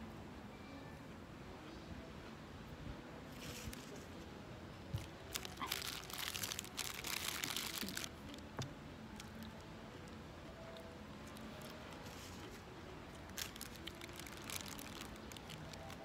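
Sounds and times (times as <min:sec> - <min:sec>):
paper wrapper crinkling: 0:05.0 - 0:08.5, 0:13.1 - 0:16.0.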